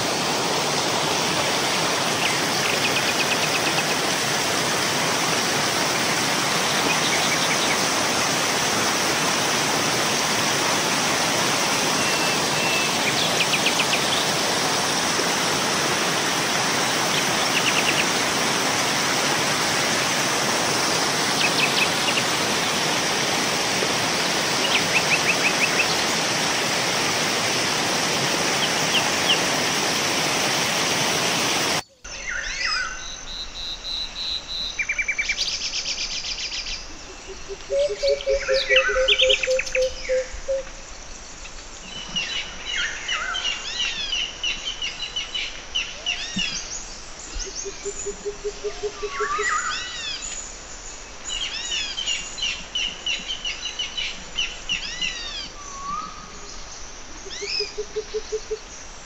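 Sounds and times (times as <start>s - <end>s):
rushing water: 0.0s - 59.0s
bird chirps and trills: 31.9s - 40.6s.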